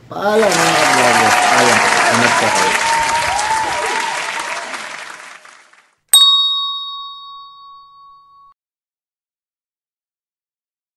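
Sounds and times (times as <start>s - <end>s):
applause: 0.3s - 6.0s
hand bell ringing: 6.2s - 8.5s.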